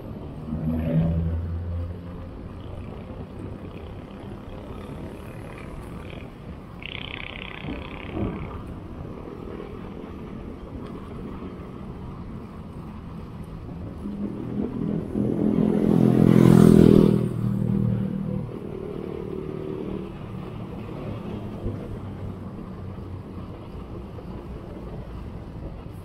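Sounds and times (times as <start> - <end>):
road noise: 0.0 - 26.0
vehicle engine passing: 14.1 - 21.2.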